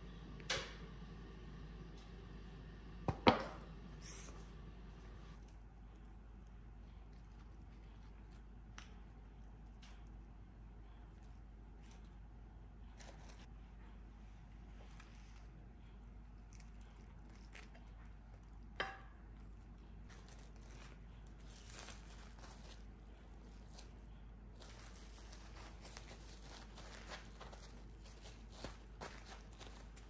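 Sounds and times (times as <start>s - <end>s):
plastic wrap crinkling: 16.3s - 18.8s, 19.4s - 30.0s.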